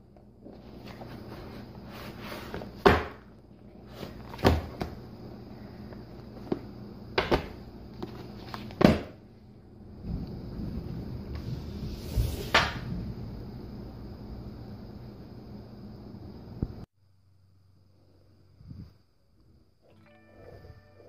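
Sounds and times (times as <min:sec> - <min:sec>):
sketchbooks thumping on table: 0:02.5 - 0:03.3, 0:04.0 - 0:05.0, 0:07.2 - 0:09.2.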